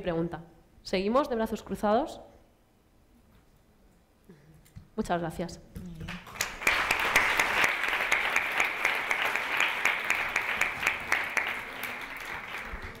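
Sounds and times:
audience applauding: 6.2s - 13.0s.

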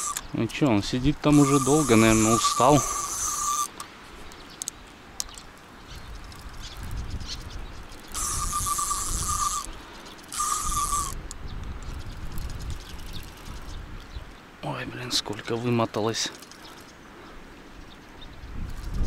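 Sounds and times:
fishing reel drag buzzing: 0.0s - 0.2s, 1.3s - 3.8s, 8.1s - 13.7s.

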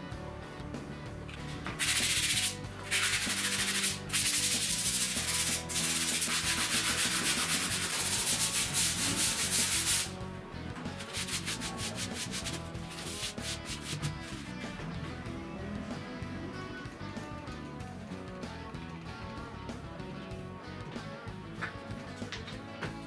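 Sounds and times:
sanding sponge rubbing: 1.8s - 10.2s, 11.0s - 14.6s.

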